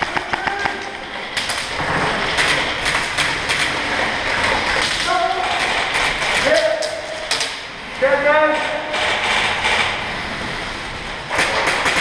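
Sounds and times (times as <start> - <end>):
pellets striking: 0.0 - 3.9
airsoft guns firing: 0.0 - 4.0, 11.3 - 12.0
steady background din: 0.0 - 12.0.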